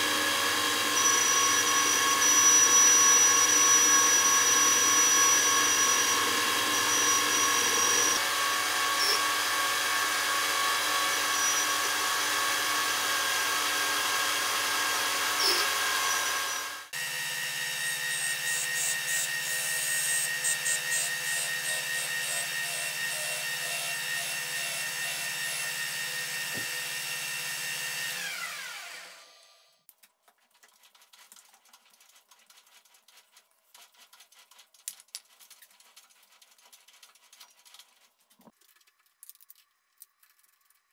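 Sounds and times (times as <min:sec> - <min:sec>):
metal lathe cutting: 0:00.0 - 0:29.3.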